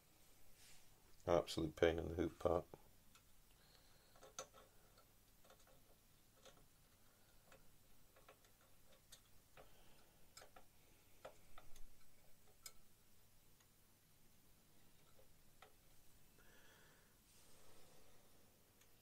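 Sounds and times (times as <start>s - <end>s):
small clicks and taps of plastic parts: 3.1s - 12.9s, 14.8s - 16.0s.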